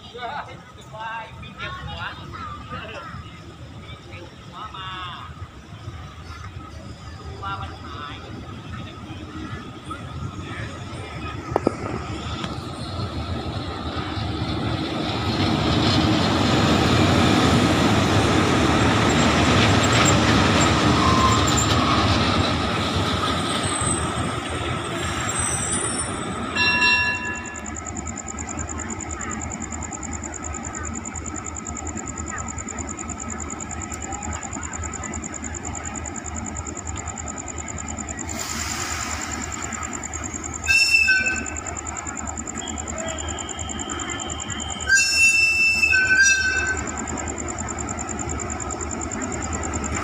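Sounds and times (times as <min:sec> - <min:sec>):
locomotive engine and wheels passing: 0:00.0 - 0:50.0
steady high-pitched whine: 0:26.3 - 0:50.0
locomotive horn blast: 0:40.6 - 0:41.6, 0:44.8 - 0:46.8.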